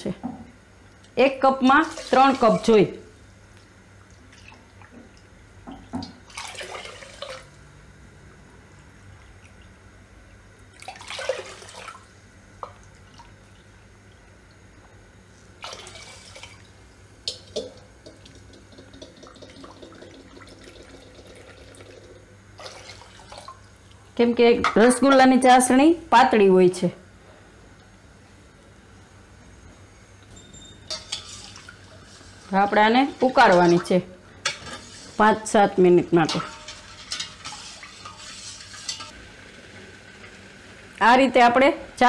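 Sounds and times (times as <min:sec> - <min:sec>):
water pouring into pot: 0:06.3 - 0:07.6, 0:15.6 - 0:16.7, 0:17.6 - 0:23.6
water dripping: 0:17.3 - 0:24.0.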